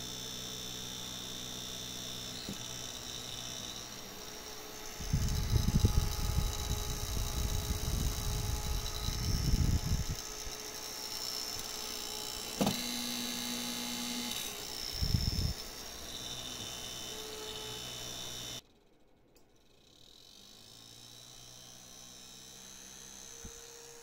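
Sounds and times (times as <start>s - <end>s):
cooling fan whining: 0.0s - 18.6s
low hum: 0.0s - 18.6s
wind buffeting microphone: 5.0s - 10.2s, 15.0s - 15.6s.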